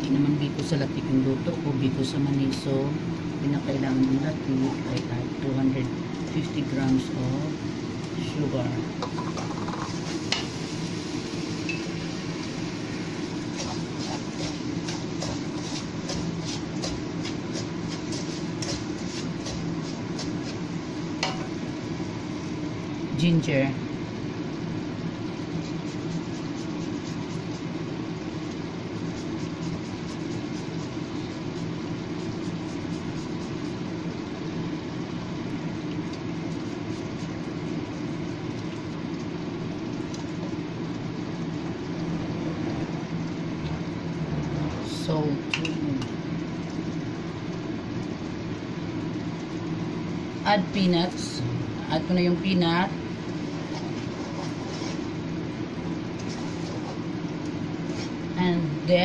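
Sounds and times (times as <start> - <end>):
steady low hum: 0.0 - 59.0
wooden spatula scraping skillet: 13.5 - 20.6, 53.4 - 55.2, 56.2 - 57.1.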